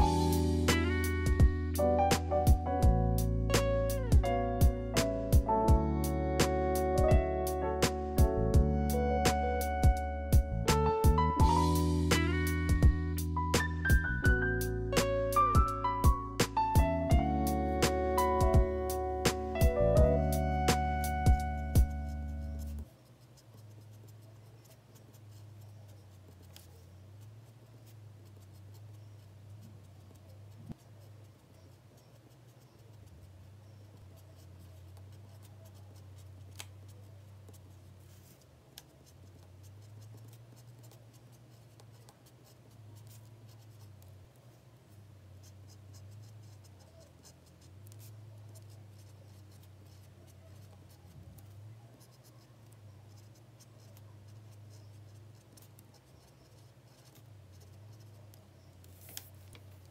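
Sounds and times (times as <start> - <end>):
pen scratching on paper: 20.3 - 59.9.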